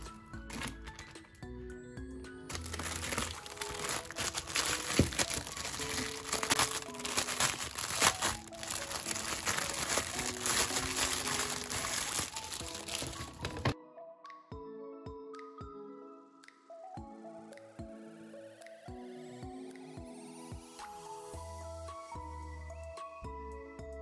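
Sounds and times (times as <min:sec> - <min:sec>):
plastic film crinkling: 0:00.0 - 0:01.3, 0:02.5 - 0:13.8.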